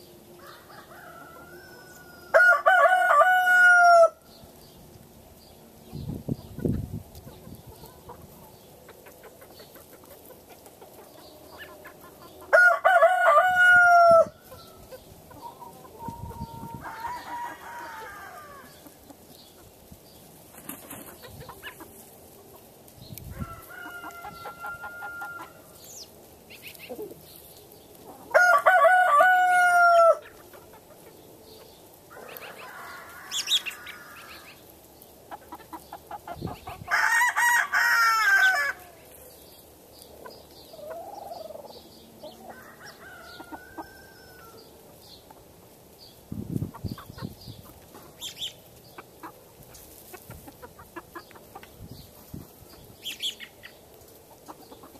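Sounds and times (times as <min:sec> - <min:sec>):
chicken calls: 0:00.0 - 0:05.0, 0:05.7 - 0:54.9
rooster crowing: 0:00.4 - 0:04.2, 0:12.5 - 0:14.9, 0:16.0 - 0:18.8, 0:23.3 - 0:25.8, 0:28.3 - 0:30.2, 0:32.1 - 0:34.6, 0:36.9 - 0:39.0, 0:42.4 - 0:44.7.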